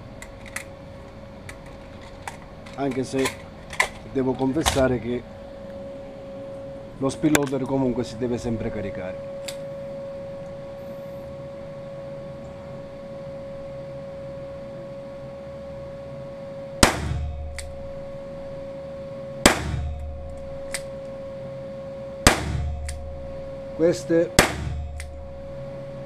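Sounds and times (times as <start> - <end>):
steady hum: 0.0 - 26.0
revolver shots: 16.8 - 17.8, 19.4 - 20.1, 22.2 - 23.0, 24.4 - 25.1.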